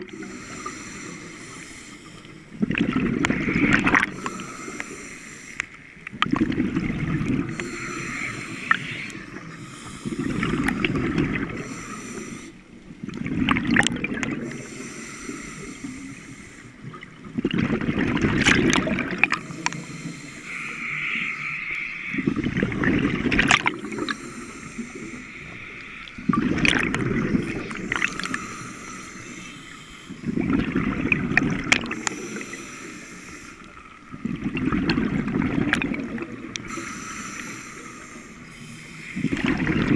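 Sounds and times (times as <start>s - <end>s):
regulator hiss on inhale: 0.0s - 2.6s, 4.1s - 6.0s, 7.5s - 12.8s, 14.4s - 16.9s, 19.3s - 22.2s, 23.8s - 26.1s, 27.6s - 30.4s, 31.9s - 34.1s, 36.5s - 39.4s
exhaled bubbles rushing: 2.6s - 4.2s, 6.1s - 7.6s, 10.2s - 11.6s, 13.0s - 14.6s, 17.2s - 19.5s, 22.2s - 24.1s, 26.1s - 28.4s, 30.2s - 32.2s, 34.1s - 36.7s, 39.2s - 39.9s.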